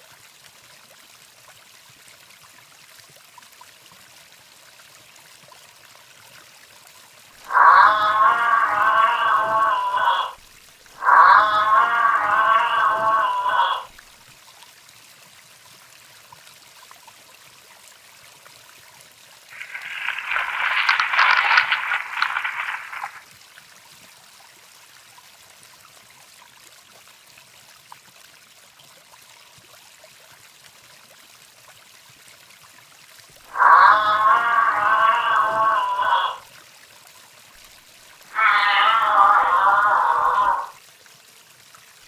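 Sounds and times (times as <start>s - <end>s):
giraffe call: 7.4s - 10.4s, 11.0s - 13.9s, 33.5s - 36.4s, 38.3s - 40.7s
faint steady hiss: 19.4s - 26.1s.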